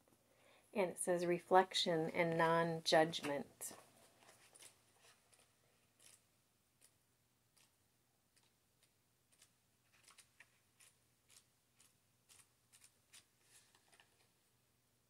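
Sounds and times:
paper pages rustling: 0:03.7 - 0:06.2, 0:09.3 - 0:11.4, 0:12.3 - 0:14.3.

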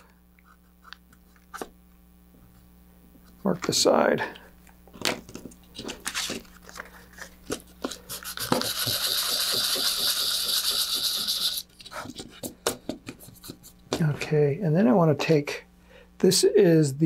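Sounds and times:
sandpaper sanding by hand: 0:08.1 - 0:11.7.

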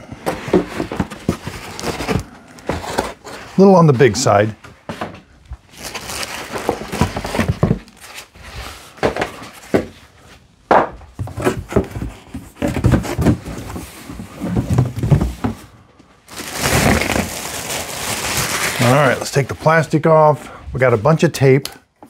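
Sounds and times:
cardboard and pulp packaging rustling: 0:00.0 - 0:10.3, 0:11.2 - 0:21.2
plastic wrap crinkling: 0:05.6 - 0:08.2, 0:16.2 - 0:19.8.

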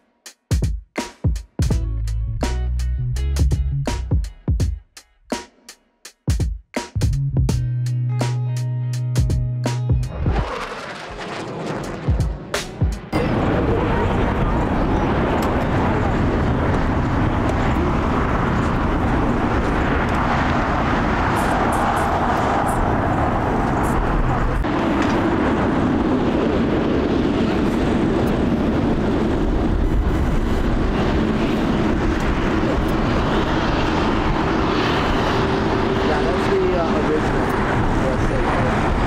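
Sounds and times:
deep drone: 0:07.0 - 0:39.0
jet engines running: 0:10.0 - 0:39.0.

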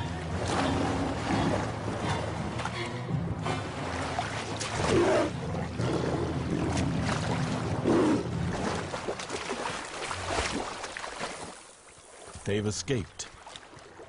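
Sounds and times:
low musical drone: 0:00.0 - 0:09.4
water splashing and churning: 0:00.0 - 0:14.0.

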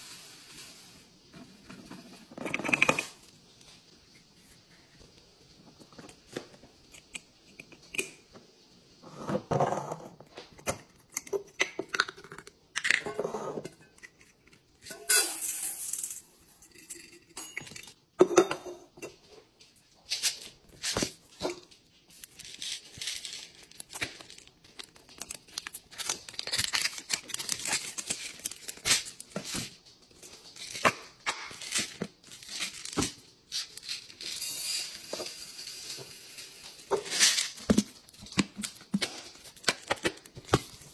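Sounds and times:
packaging tearing and crinkling: 0:22.1 - 0:34.2
beads pouring into glass jar: 0:33.8 - 0:37.6.

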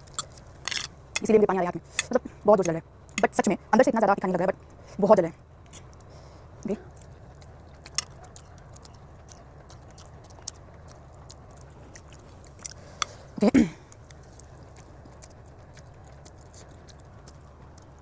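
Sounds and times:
person chewing noodles: 0:05.7 - 0:18.0.

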